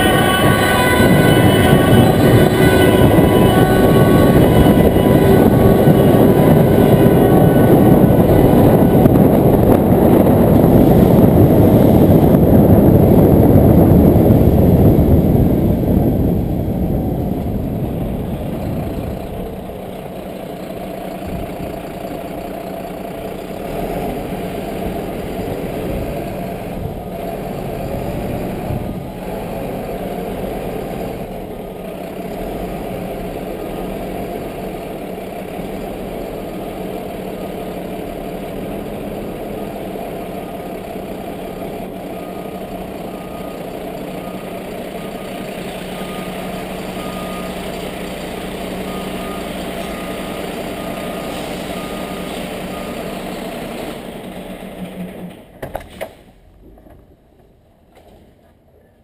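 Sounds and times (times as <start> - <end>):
truck diesel engine and tyre noise: 0.0 - 59.0.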